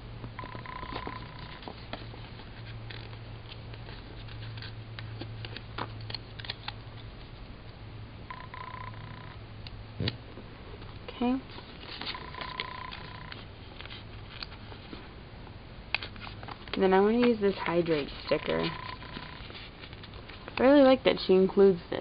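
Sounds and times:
steady low hum: 0:00.0 - 0:22.0
sticker paper rustling and clicking: 0:16.0 - 0:20.8.

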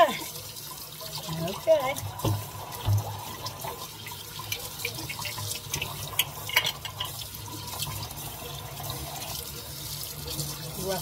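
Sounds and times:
faucet running into metal sink: 0:00.0 - 0:11.0.

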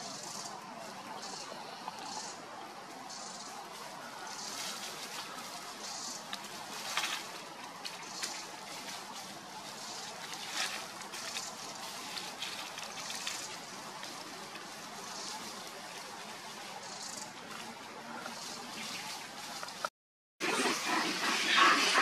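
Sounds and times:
steady outdoor hiss: 0:00.0 - 0:22.0
dry leaves crackling and rustling: 0:02.9 - 0:19.9.

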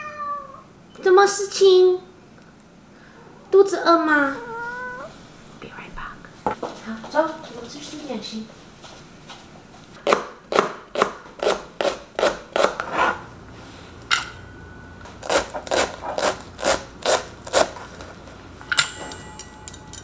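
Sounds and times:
knife chopping on cutting board: 0:10.0 - 0:13.2.

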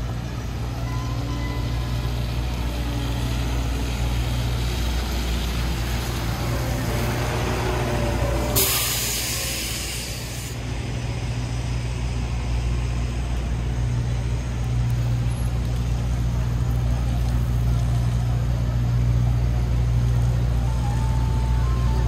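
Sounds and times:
large vehicle engine running: 0:00.0 - 0:22.0
air hiss: 0:08.5 - 0:10.6.

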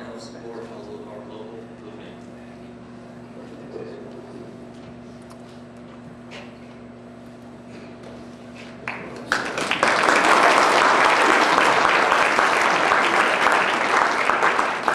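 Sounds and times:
crowd applauding: 0:08.8 - 0:14.9.

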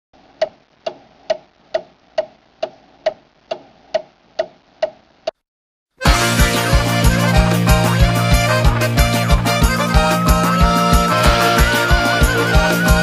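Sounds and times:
clock-like ticking: 0:00.4 - 0:05.0
upbeat music with steady beat: 0:06.0 - 0:13.0.

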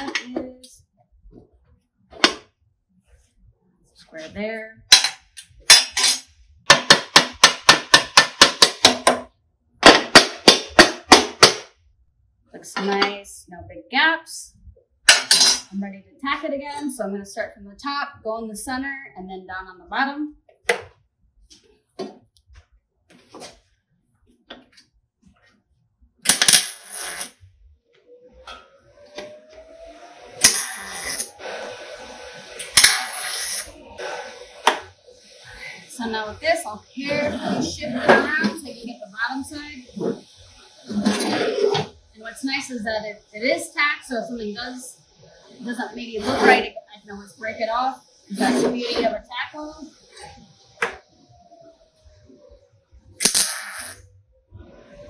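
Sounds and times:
welding arc sizzle: 0:29.0 - 0:37.2.

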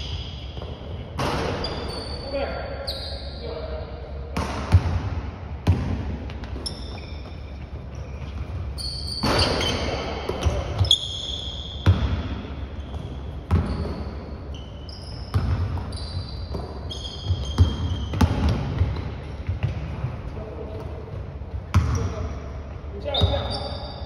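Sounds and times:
sneakers squeaking: 0:00.0 - 0:05.0, 0:05.6 - 0:24.0
basketball dribbling thuds: 0:04.4 - 0:11.0, 0:11.8 - 0:14.2, 0:15.3 - 0:22.2.

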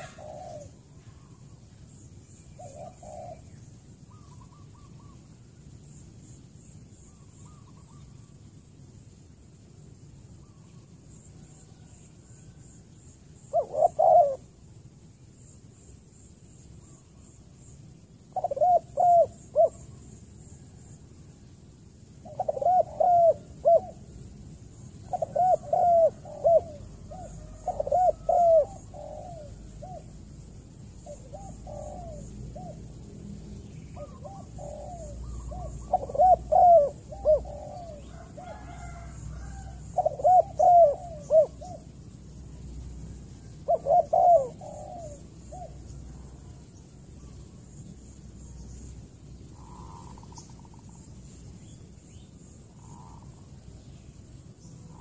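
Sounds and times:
dove cooing: 0:00.0 - 0:01.6, 0:02.5 - 0:05.3, 0:13.4 - 0:14.6, 0:18.2 - 0:20.8, 0:22.2 - 0:30.4, 0:31.0 - 0:33.0, 0:33.8 - 0:42.0, 0:43.1 - 0:47.4, 0:49.5 - 0:51.0, 0:52.7 - 0:53.5.

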